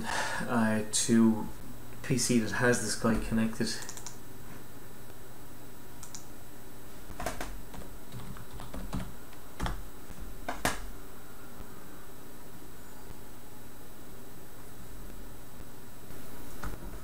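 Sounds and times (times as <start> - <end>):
steady low hum: 0.0 - 17.0
computer keys clicking: 3.8 - 4.2, 6.0 - 6.3, 7.2 - 9.8, 10.4 - 10.9.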